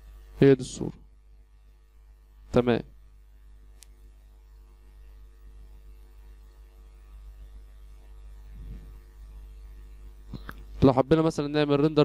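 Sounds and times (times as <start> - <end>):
electrical mains hum: 0.0 - 12.0
faint background hiss: 0.0 - 12.0.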